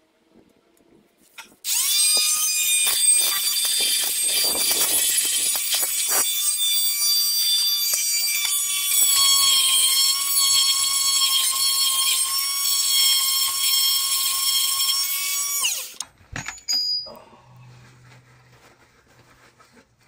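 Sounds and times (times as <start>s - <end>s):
power tool whining on metal: 1.6s - 16.0s.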